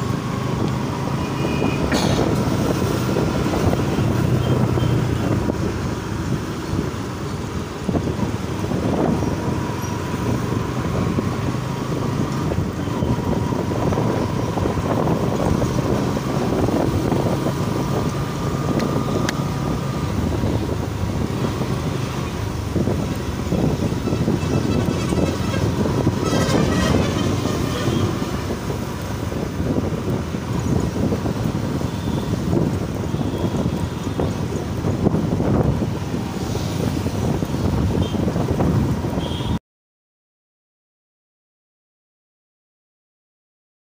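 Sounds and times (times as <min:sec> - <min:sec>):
road and traffic noise: 0:00.0 - 0:39.6
vehicle horn: 0:01.2 - 0:01.9, 0:24.0 - 0:28.4, 0:39.2 - 0:39.6.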